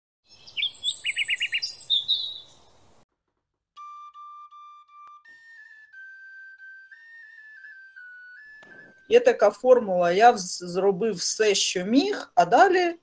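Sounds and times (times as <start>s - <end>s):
bird chirps and trills: 0.3s - 2.9s
slow flute-like melody: 3.8s - 9.2s.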